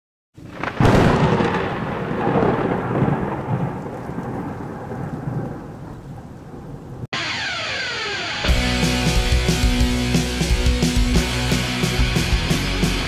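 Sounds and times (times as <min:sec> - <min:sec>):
thunder crack and rumble: 0:00.4 - 0:07.1.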